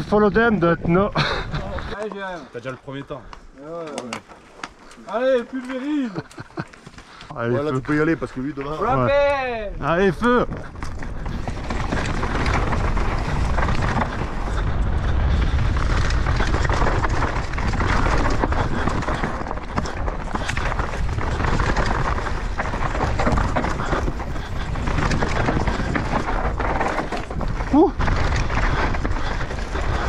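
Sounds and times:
tyres on dirt and gravel: 0.0 - 30.0
bike clattering over bumps: 1.2 - 30.0
wind rumble on microphone: 9.0 - 30.0.

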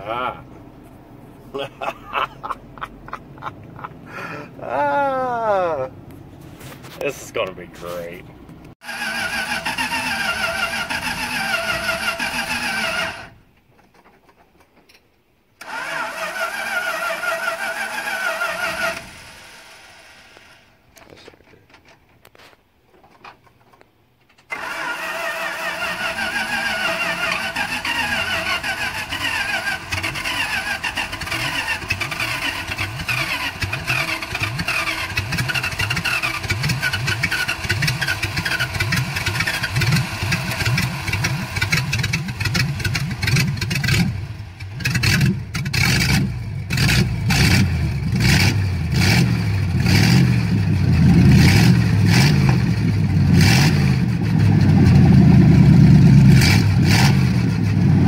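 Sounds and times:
car engine cranking: 8.5 - 14.2, 15.6 - 20.6, 24.2 - 58.0
engine running rough: 24.5 - 58.0.

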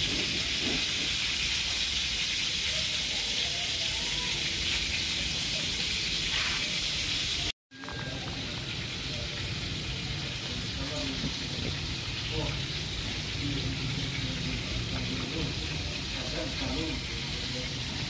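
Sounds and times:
oil sizzling frying food: 0.0 - 18.0.

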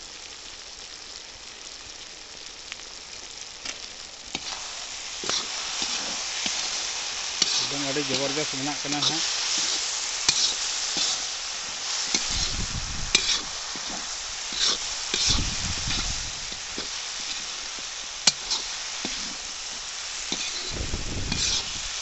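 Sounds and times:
chicken sizzling in pan: 0.0 - 22.0
metal spatula scraping pan: 5.2 - 11.3, 12.0 - 17.6, 18.3 - 21.7.

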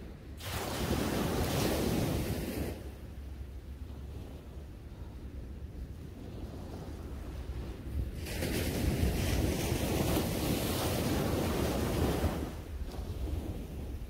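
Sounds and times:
wind rumble on microphone: 0.0 - 14.0
wave breaking on shore: 0.4 - 3.0, 6.9 - 14.0.

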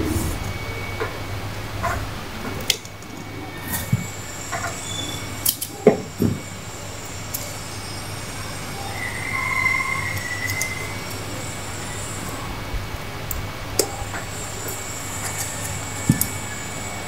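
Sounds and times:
thin high squeal: 0.0 - 2.0, 3.3 - 12.6.

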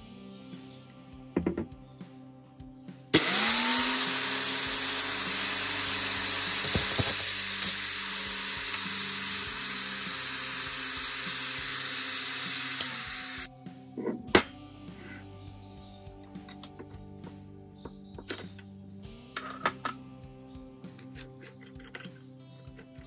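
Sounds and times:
angle grinder running: 3.2 - 13.5.

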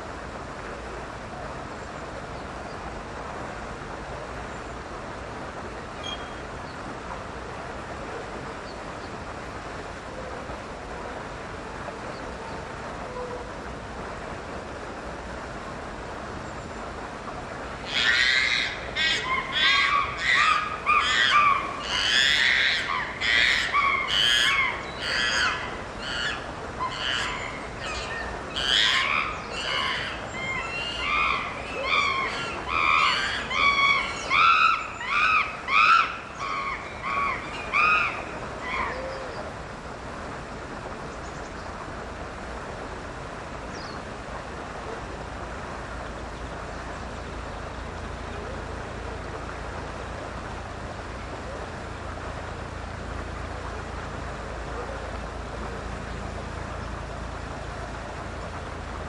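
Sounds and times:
chimpanzee screaming: 17.8 - 39.0.

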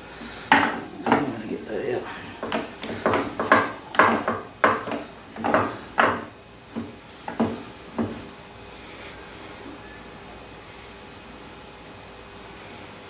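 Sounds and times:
metallic clunks and knocks: 2.4 - 8.2.

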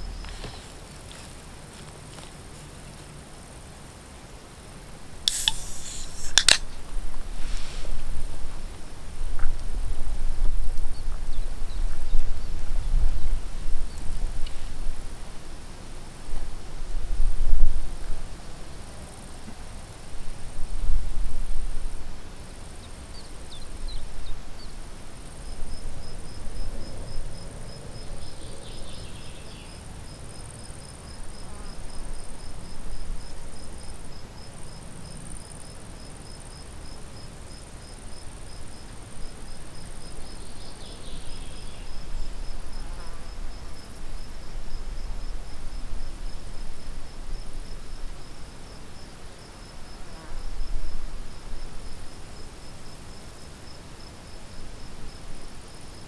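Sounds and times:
crickets chirping: 0.0 - 56.0
steady high buzz: 5.3 - 6.8.

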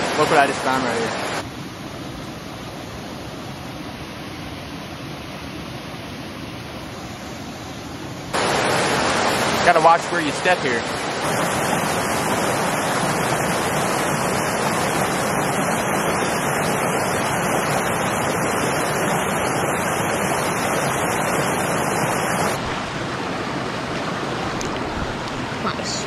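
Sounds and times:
creek water rushing over rocks: 0.0 - 1.7, 8.2 - 26.0.

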